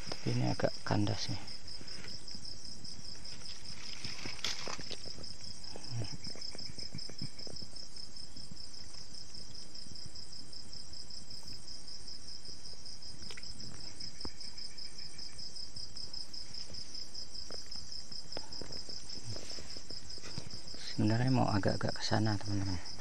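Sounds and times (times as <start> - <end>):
lower-pitched insect chirping: 0.0 - 23.0
night insects trilling: 0.0 - 23.0.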